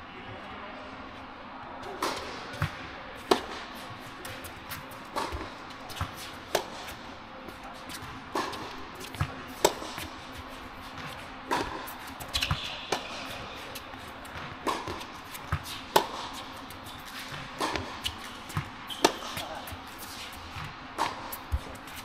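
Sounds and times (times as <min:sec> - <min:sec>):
tennis racket hits: 0:02.0 - 0:07.0, 0:11.0 - 0:22.0
tennis ball bounces: 0:05.1 - 0:06.9, 0:08.3 - 0:10.1, 0:11.0 - 0:13.4, 0:14.2 - 0:16.5, 0:17.2 - 0:19.6, 0:20.6 - 0:21.9.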